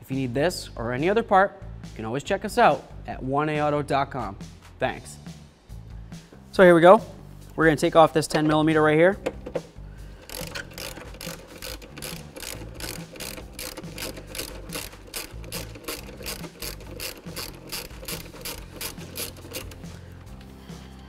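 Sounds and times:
hand ratchet clicking: 0:09.2 - 0:19.9.

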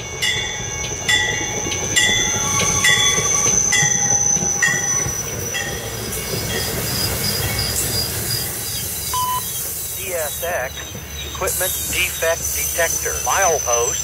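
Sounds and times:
high-pitched wheel squeals: 0:00.0 - 0:10.0
train wheels rumbling on rail: 0:00.0 - 0:14.0.

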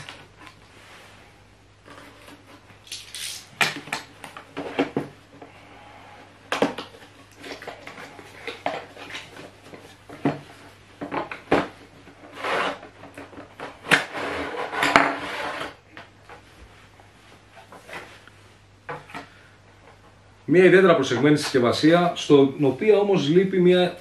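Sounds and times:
scraping and rustling: 0:06.8 - 0:20.2.

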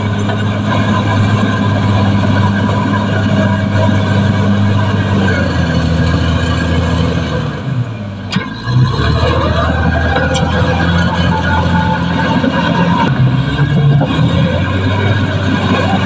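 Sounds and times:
bulldozer diesel engine running: 0:00.0 - 0:16.0.

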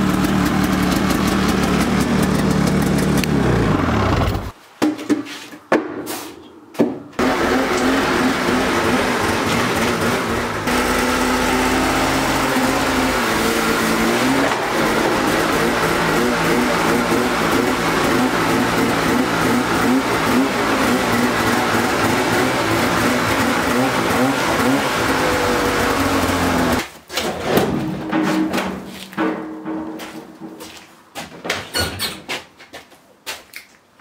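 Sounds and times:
snowmobile engine revving: 0:00.0 - 0:04.6, 0:07.2 - 0:26.8.

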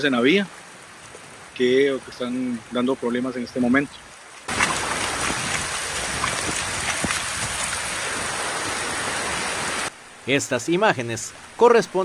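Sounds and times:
floodwater rushing: 0:04.1 - 0:10.3
heavy rain pouring: 0:04.2 - 0:10.0.

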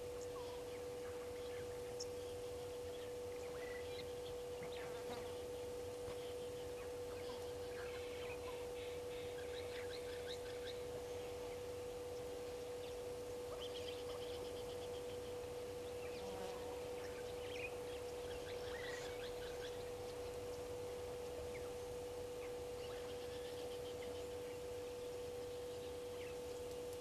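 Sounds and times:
background hiss: 0:00.0 - 0:27.0
steady electrical hum: 0:00.0 - 0:27.0.

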